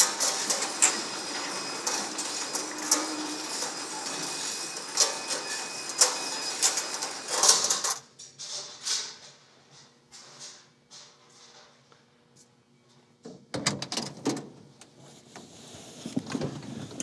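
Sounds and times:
garage door chain rattling: 0:00.0 - 0:08.6.

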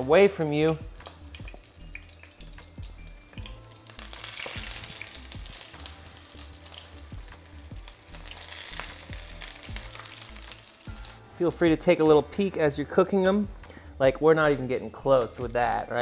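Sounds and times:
eggplant sizzling in oil: 0:00.0 - 0:11.3.

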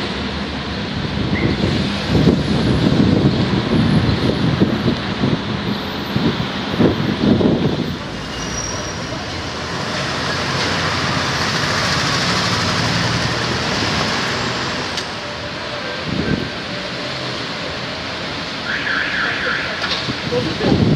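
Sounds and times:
street traffic: 0:00.0 - 0:20.9
vehicle passing: 0:06.2 - 0:19.6.

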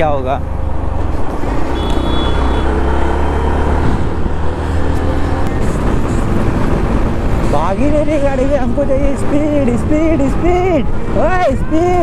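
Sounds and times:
wind rumble on microphone: 0:03.7 - 0:12.0.

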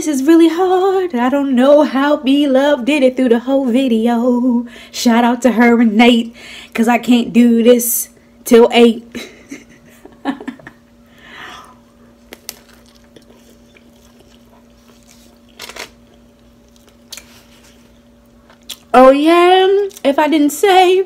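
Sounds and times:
steady low hum: 0:00.0 - 0:21.0
chewing and crunching: 0:12.1 - 0:18.9.

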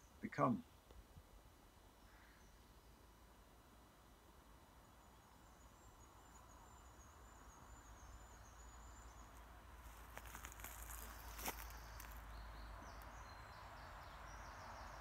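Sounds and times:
rustling: 0:09.8 - 0:12.2.

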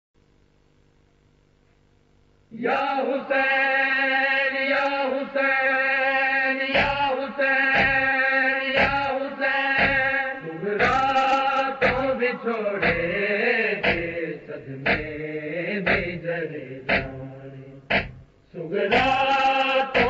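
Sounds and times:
men chanting without instruments: 0:02.5 - 0:20.0
rhythmic chest-beating thumps: 0:06.7 - 0:07.1, 0:07.7 - 0:20.0.

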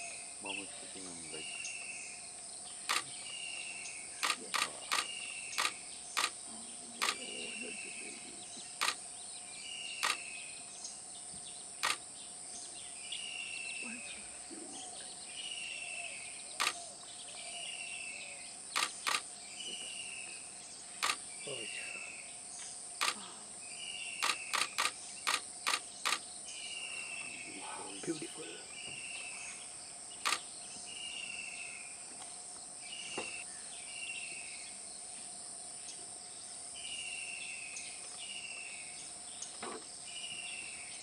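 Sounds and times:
high insect drone: 0:00.0 - 0:41.0
sharp single clicks: 0:02.8 - 0:03.1, 0:04.2 - 0:06.4, 0:07.0 - 0:07.2, 0:08.8 - 0:09.0, 0:10.0 - 0:10.3, 0:11.8 - 0:12.0, 0:16.6 - 0:16.8, 0:18.7 - 0:19.3, 0:21.0 - 0:21.2, 0:23.0 - 0:23.2, 0:24.2 - 0:26.2, 0:30.2 - 0:30.4.

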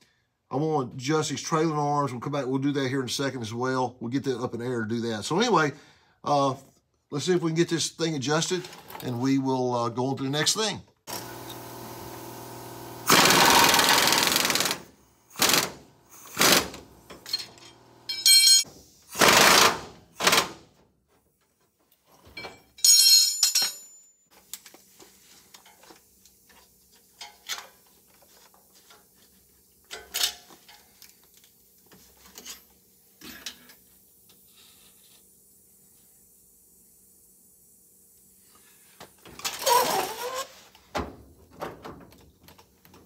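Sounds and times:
impact wrench hammering: 0:11.1 - 0:20.6.

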